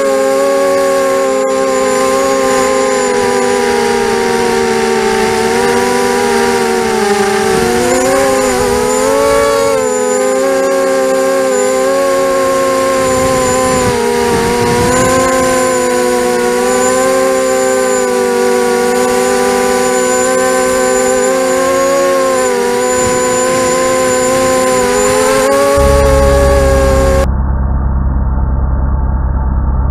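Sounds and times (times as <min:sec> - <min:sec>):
drone motors whining: 0:00.0 - 0:29.9.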